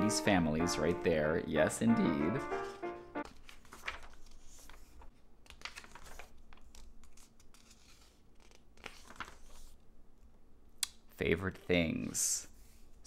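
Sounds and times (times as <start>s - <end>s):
magazine pages turning: 2.3s - 9.8s.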